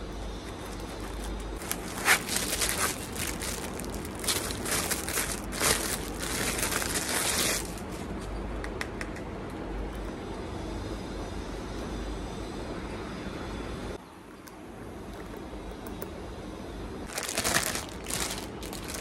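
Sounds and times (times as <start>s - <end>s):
plastic packaging crinkling: 0.2s - 8.0s, 17.1s - 19.0s.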